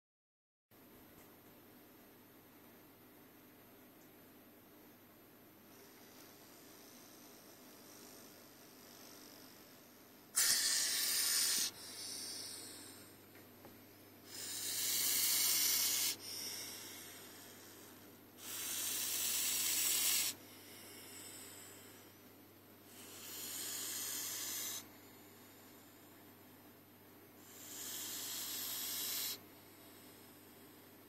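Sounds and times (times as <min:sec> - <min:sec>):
snake hissing: 0:10.4 - 0:13.1, 0:14.3 - 0:22.0, 0:22.9 - 0:24.9, 0:27.4 - 0:30.1.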